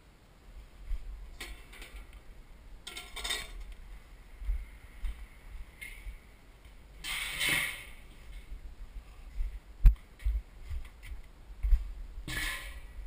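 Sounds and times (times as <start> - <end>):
metal lid clinking: 2.9 - 3.7.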